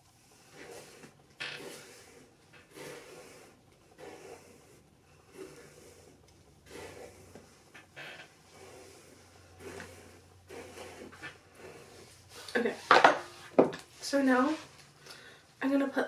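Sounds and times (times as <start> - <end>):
hairbrush swishing through wet hair: 0.0 - 15.0.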